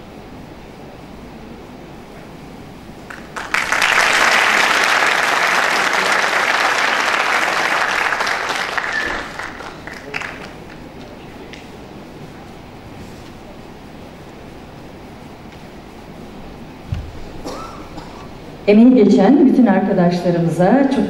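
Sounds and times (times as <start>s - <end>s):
audience applauding: 3.1s - 11.7s.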